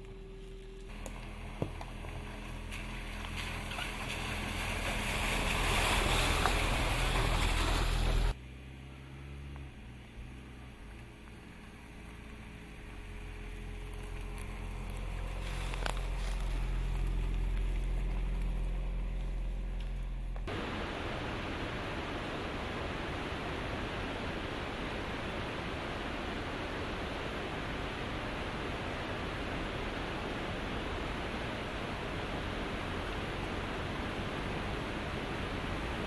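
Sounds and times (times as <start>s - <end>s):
tyres crunching over dirt: 0.0s - 8.4s, 10.3s - 20.6s
car engine humming: 0.0s - 36.0s.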